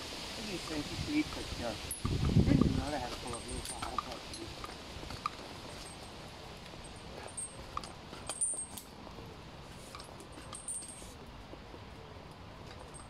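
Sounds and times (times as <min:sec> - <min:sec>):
climbing spurs clinking: 0:01.9 - 0:09.2, 0:09.8 - 0:11.2.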